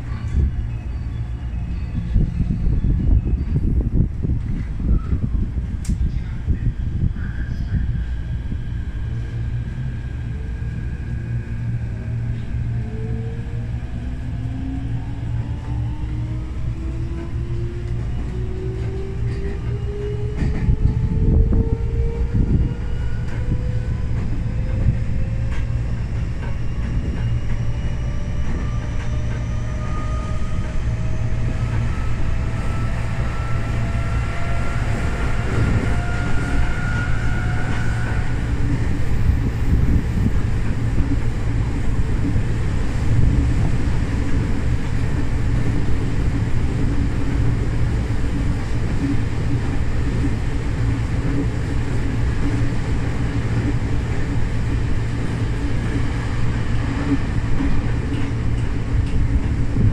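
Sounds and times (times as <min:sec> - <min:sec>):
wheels rumbling on rails: 0:00.0 - 0:59.9.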